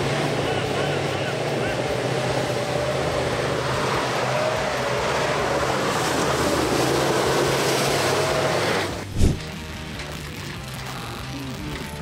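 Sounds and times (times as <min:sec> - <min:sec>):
truck engine working: 0:00.0 - 0:12.0
loud thump: 0:09.1 - 0:09.5.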